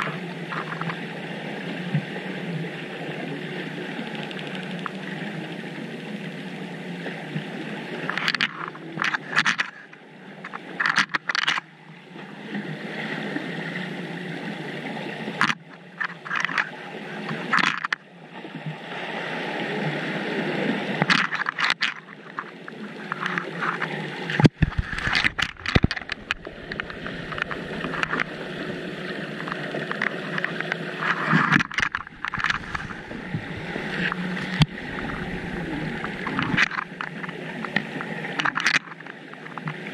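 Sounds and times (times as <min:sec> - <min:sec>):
muffled underwater noise: 0:00.0 - 0:18.0, 0:19.4 - 0:39.9
gurgling and knocking: 0:23.2 - 0:39.6
deep rumble: 0:24.6 - 0:29.5, 0:32.0 - 0:37.3.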